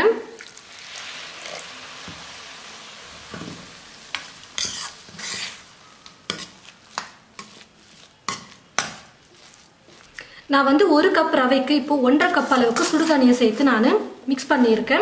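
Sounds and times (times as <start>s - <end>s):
hot water hissing in pan: 0.4s - 5.9s
ladle stirring and scraping: 3.3s - 10.3s, 12.2s - 13.9s.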